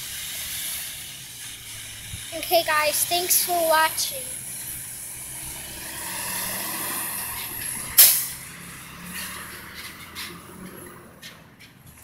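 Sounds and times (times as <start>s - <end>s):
diesel truck engine running: 0.0s - 10.7s
sudden loud burst: 5.4s - 8.5s.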